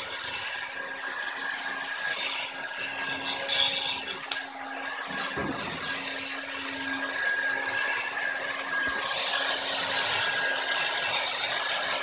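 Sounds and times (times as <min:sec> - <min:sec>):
hot-air blower hissing: 0:03.4 - 0:12.0
faint high whistle: 0:05.9 - 0:06.6, 0:07.7 - 0:08.2.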